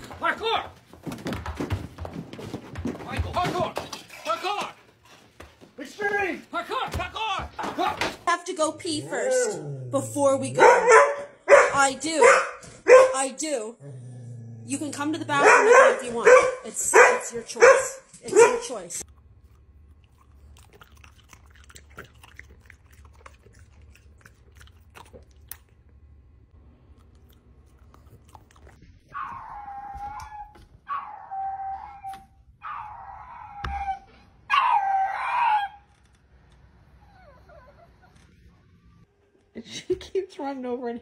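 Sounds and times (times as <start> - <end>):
dog howling: 8.9 - 10.0, 29.1 - 35.8.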